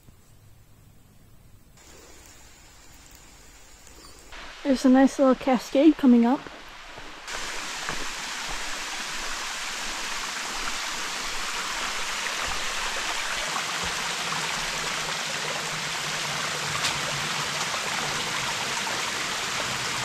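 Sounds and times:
water rushing down a cascade: 0:04.4 - 0:20.0.

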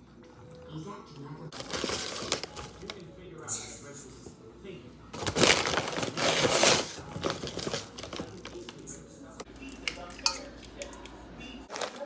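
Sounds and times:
utensils clinking against metal bowl: 0:05.4 - 0:12.0.

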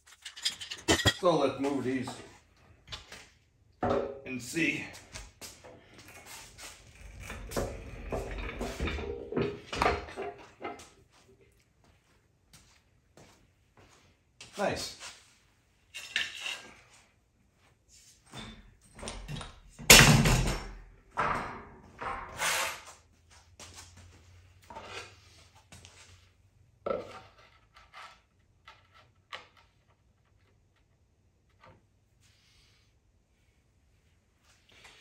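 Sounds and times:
objects knocking on concrete floor: 0:03.8 - 0:04.2.

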